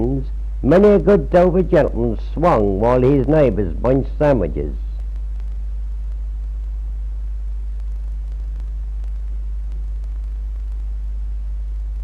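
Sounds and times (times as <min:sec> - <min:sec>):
low electrical hum: 0:00.0 - 0:12.0
tape hiss: 0:00.0 - 0:12.0
faint clicks: 0:05.0 - 0:06.8, 0:07.7 - 0:11.0.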